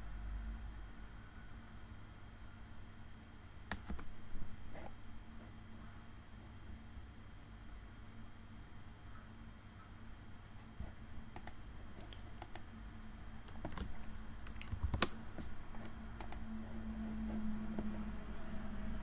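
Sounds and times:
keyboard keystrokes: 3.7s - 4.1s, 11.4s - 12.7s, 13.4s - 16.4s
mouse clicks: 3.7s - 4.1s, 11.4s - 12.7s, 13.4s - 16.5s.

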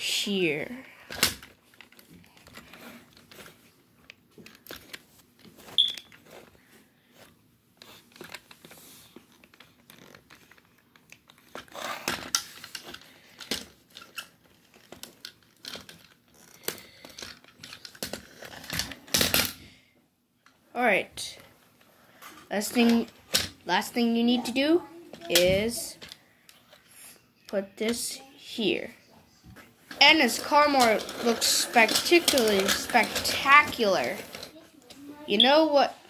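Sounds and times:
plastic toy clicks and rattles: 9.4s - 19.6s, 29.9s - 34.6s.

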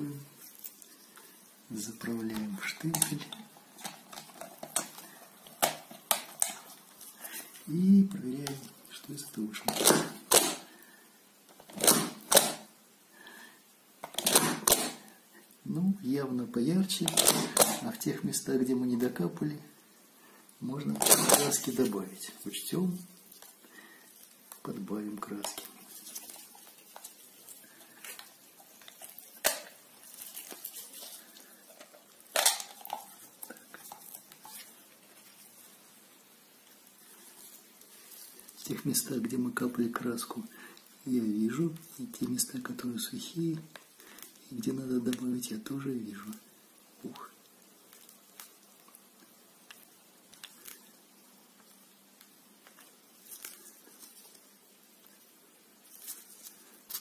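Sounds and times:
plastic bottle clicks and rustles: 2.3s - 6.8s, 9.6s - 10.6s, 14.0s - 15.0s, 17.0s - 17.9s, 20.9s - 21.8s, 28.0s - 34.7s
plastic stamp clicking: 17.1s - 17.8s.

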